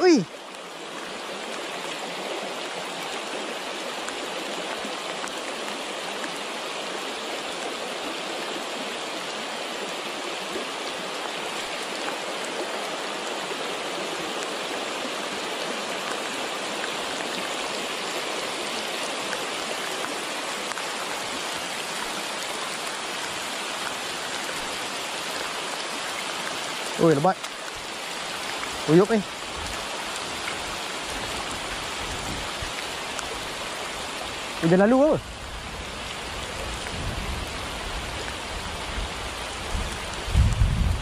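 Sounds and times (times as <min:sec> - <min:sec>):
rain falling on water: 0:00.0 - 0:41.0
river running over rocks: 0:00.0 - 0:41.0.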